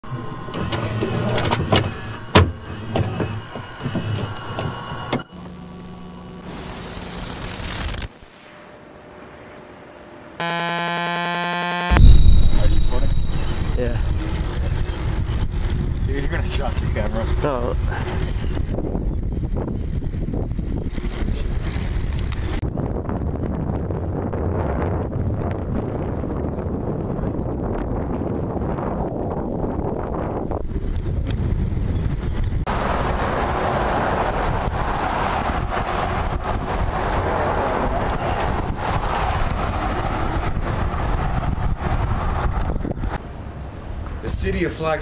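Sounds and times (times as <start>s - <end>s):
steady low hum: 8.9s - 17.1s
tape mechanism clicking and whirring: 10.4s - 22.6s
wind buffeting microphone: 12.0s - 43.2s.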